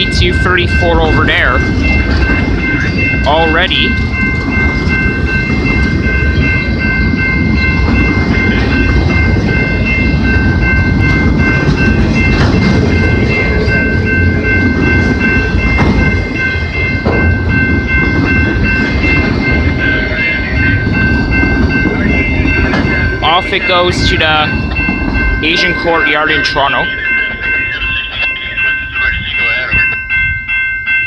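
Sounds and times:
train wheels rumbling on rail: 0:00.0 - 0:31.0
clacks and knocks: 0:22.6 - 0:23.0.

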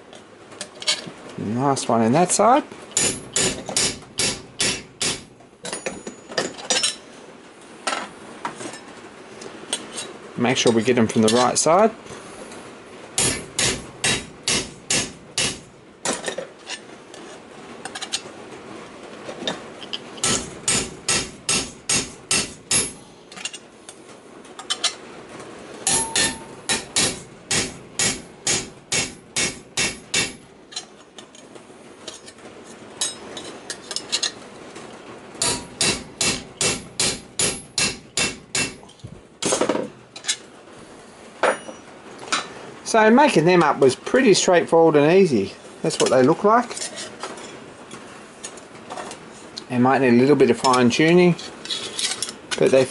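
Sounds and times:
hammer striking steel punch: 0:03.0 - 0:05.3, 0:13.2 - 0:15.7, 0:20.2 - 0:23.0, 0:25.9 - 0:30.4, 0:35.4 - 0:38.8.

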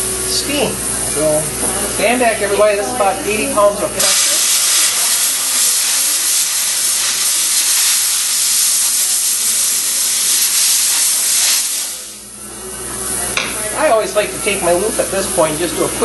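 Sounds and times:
steam cleaner hissing: 0:00.0 - 0:12.3.

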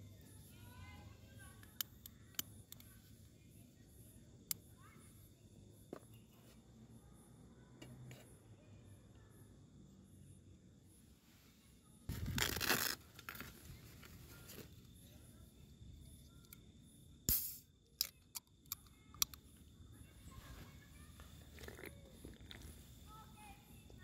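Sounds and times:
fabric and plastic bags rustling: 0:12.1 - 0:14.8.

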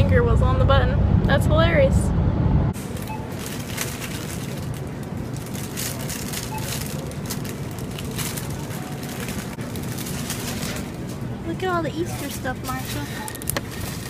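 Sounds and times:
low background hum: 0:00.0 - 0:14.0
shopping cart rattling: 0:02.8 - 0:14.0.

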